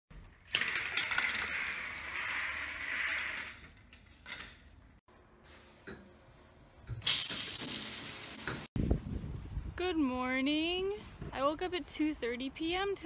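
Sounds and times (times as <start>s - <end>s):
shower water spraying: 7.0s - 8.7s.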